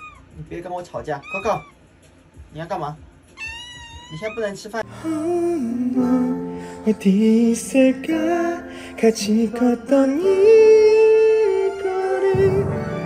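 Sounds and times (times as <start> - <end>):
slow song with singing: 4.8 - 13.0.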